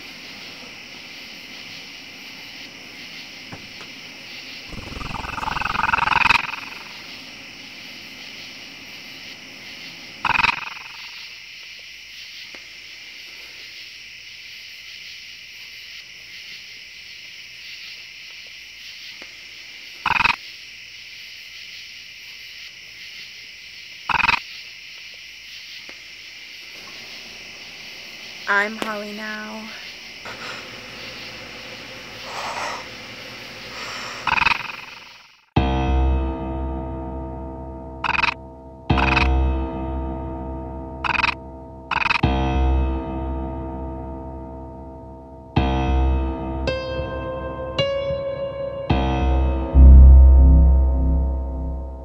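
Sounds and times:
growls or snarls: 4.7 - 6.0
steady high hiss: 24.6 - 35.3.

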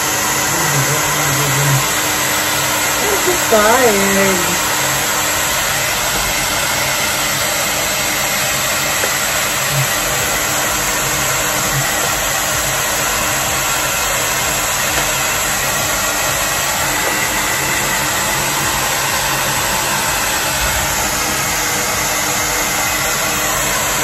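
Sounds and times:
hair dryer blowing air: 0.0 - 24.0.

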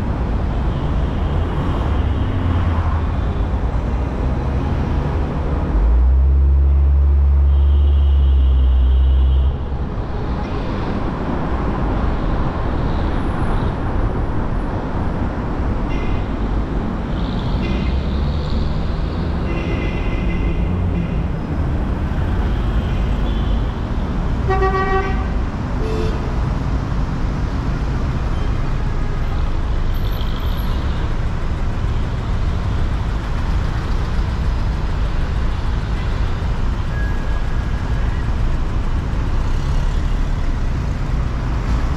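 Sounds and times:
traffic rumble: 0.0 - 41.9.

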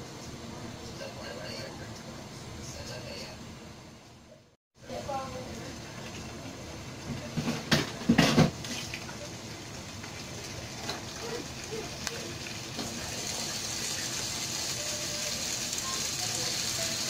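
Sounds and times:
meat sizzling in hot oil: 8.6 - 17.0.

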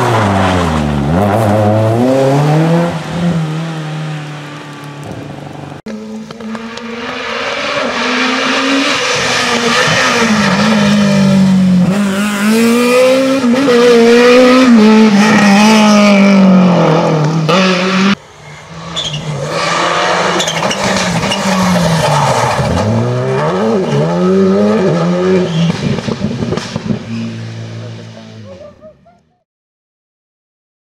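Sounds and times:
rally car engines accelerating: 5.9 - 28.7.

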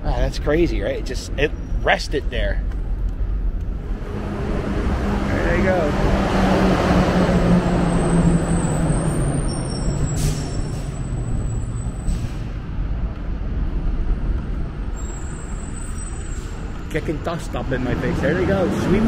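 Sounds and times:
street sweeper engine and blower drone: 3.8 - 10.4.

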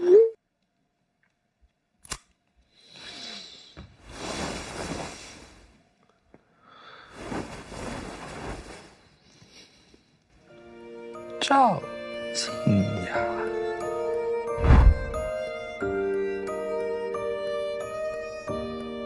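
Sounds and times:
whooshing swells of noise: 14.6 - 15.3.

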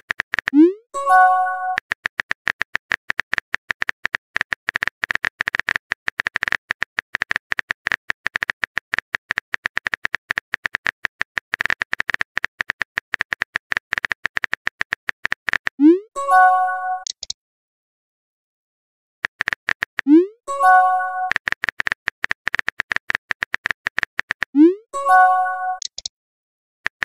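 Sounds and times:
phone keyboard clicks: 1.6 - 15.8, 17.0 - 17.4, 19.2 - 20.1, 20.9 - 24.6, 25.7 - 26.1.

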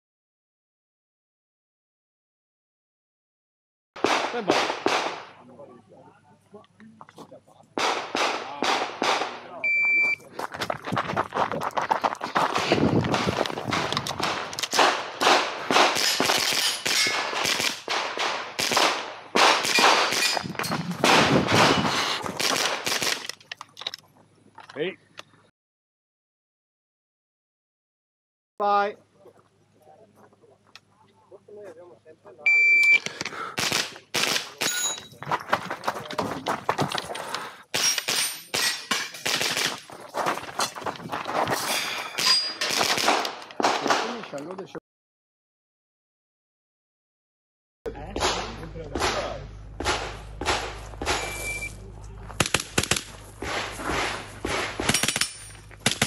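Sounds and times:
rifle shots with echoes: 4.0 - 5.5, 7.8 - 9.6, 13.7 - 20.4, 21.0 - 23.2, 33.5 - 34.8, 42.7 - 44.2, 48.1 - 51.7, 52.4 - 56.0.

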